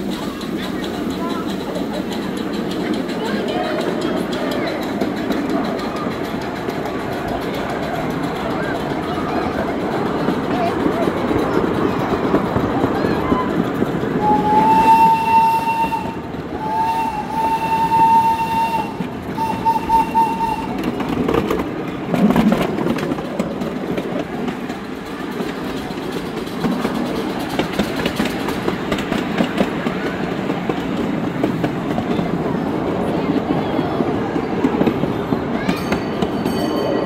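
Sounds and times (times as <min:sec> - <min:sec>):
small train rumble and wheel clatter: 0:00.0 - 0:37.0
steam whistle blasts: 0:14.2 - 0:20.8.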